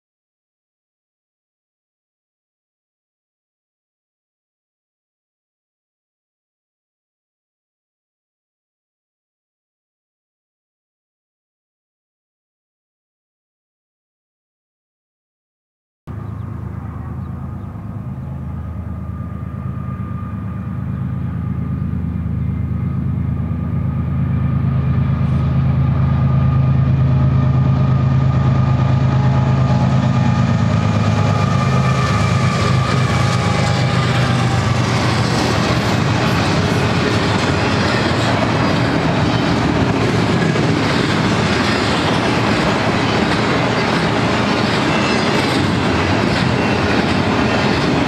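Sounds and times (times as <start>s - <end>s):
locomotive engine drone: 16.1s - 48.0s
train wheel and rail clatter: 16.1s - 48.0s.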